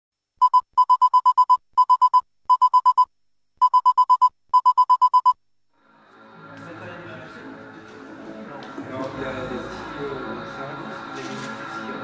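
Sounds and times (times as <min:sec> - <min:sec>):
rapid electronic typing beeps: 0:00.4 - 0:05.4.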